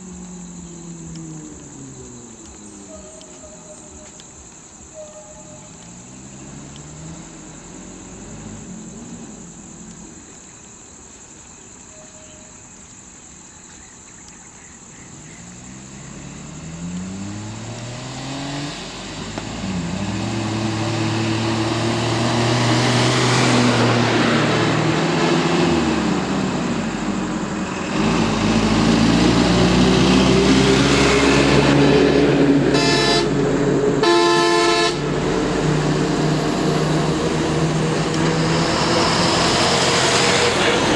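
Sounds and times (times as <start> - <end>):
vehicle engines passing: 0.0 - 11.6, 14.8 - 40.9
high insect drone: 0.0 - 40.9
bus engine rumble: 18.8 - 40.9
vehicle horn toots: 32.7 - 33.4, 34.0 - 35.1.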